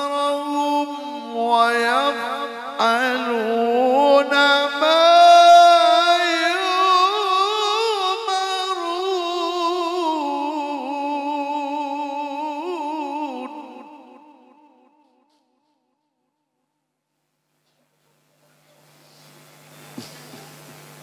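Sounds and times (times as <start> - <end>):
man chanting melismatic recitation: 0.0 - 15.4.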